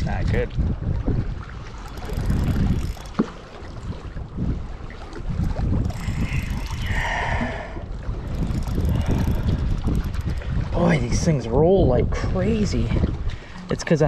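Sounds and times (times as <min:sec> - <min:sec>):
wind rumbling on microphone: 0:00.0 - 0:14.0
fishing reel handling noise: 0:01.8 - 0:03.4, 0:05.7 - 0:07.1, 0:08.3 - 0:10.6.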